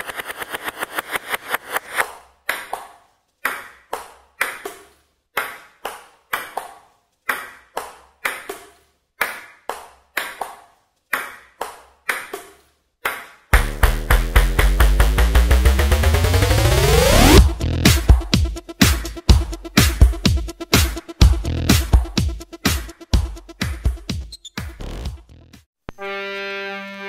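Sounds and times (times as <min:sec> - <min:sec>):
electronic music with heavy bass: 0:13.6 - 0:25.6.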